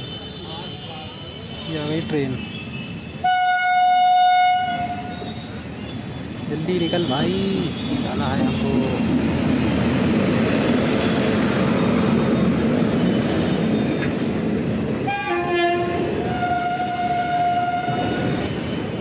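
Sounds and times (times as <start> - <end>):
train wheels rumbling on rails: 4.2 - 19.0
long steady horn tone: 15.1 - 18.4.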